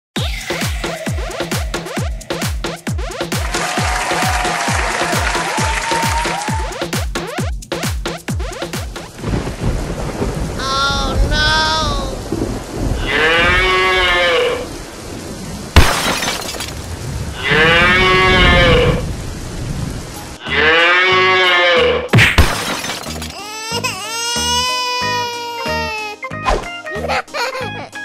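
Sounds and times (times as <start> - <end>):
rain hissing: 3.2 - 6.7, 9.0 - 20.7
thunder cracks: 9.2 - 20.0
cow mooing: 13.0 - 14.7, 17.4 - 19.0, 20.4 - 22.1.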